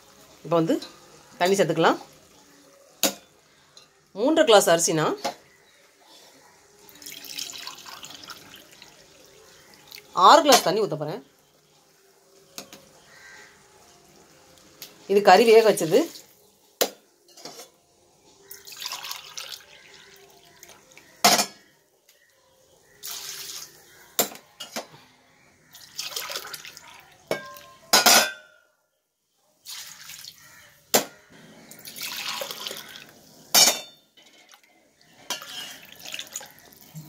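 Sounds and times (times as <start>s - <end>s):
steel vessels clinking: 31.8s - 36.4s.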